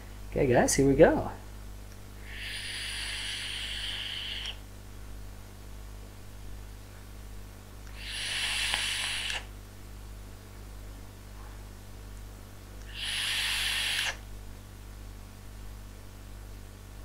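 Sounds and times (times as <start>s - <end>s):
air hissing through vape: 2.2s - 4.6s, 7.9s - 9.5s, 12.8s - 14.3s.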